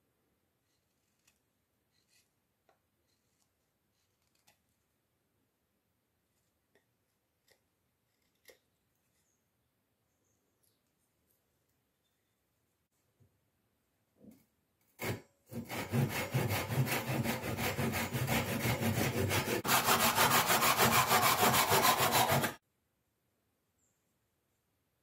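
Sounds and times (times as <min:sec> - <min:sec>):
hand saw cutting wood: 0:15.0 - 0:22.6.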